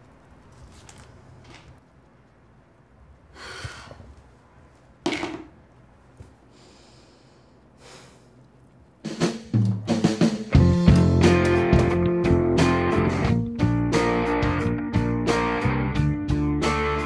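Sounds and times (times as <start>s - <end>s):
music with guitar and drums: 9.1s - 17.0s.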